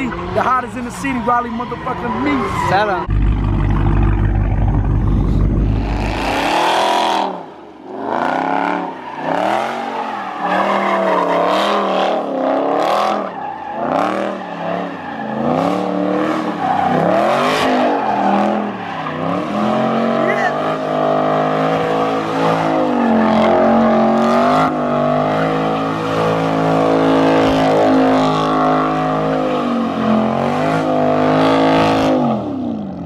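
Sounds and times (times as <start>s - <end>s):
tyres squealing: 0.0s - 3.1s
car engine revving: 0.0s - 33.0s.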